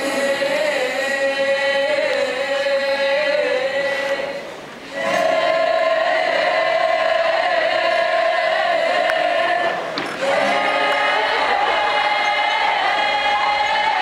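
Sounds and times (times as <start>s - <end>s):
group singing held notes: 0.0s - 14.0s.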